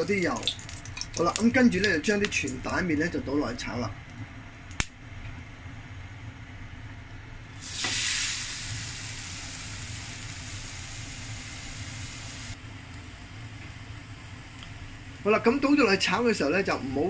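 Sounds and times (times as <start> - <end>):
noodles sizzling in hot oil: 0.0 - 2.8, 7.6 - 12.6.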